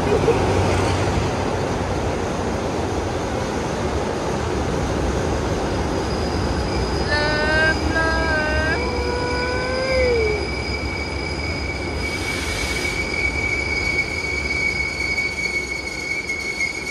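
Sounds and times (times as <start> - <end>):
moving train rumble: 0.0 - 16.9
train wheels squealing: 5.2 - 16.9
lower squeal sliding down: 5.6 - 16.9.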